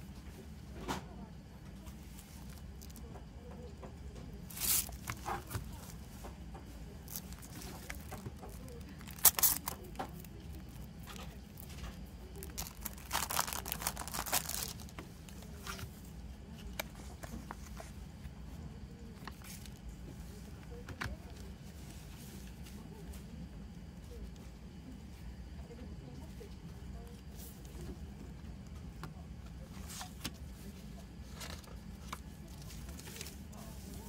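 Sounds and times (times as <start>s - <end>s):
crinkling plastic film: 1.8s - 3.2s, 4.4s - 6.2s, 6.9s - 15.9s, 31.2s - 34.0s
cellophane tearing: 4.5s - 5.6s, 7.0s - 11.7s, 12.4s - 14.9s.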